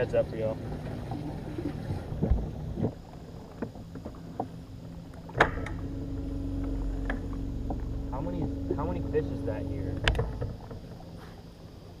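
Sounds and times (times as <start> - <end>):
knocks and thumps on a boat: 0.1 - 5.8, 6.6 - 11.5
small electric motor humming: 4.4 - 11.8.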